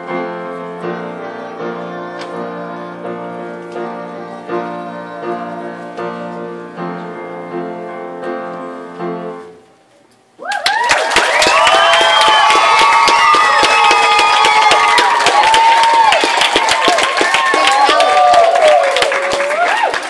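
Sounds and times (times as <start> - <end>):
upright piano playing: 0.0 - 9.9
children cheering and shrieking: 10.4 - 19.0.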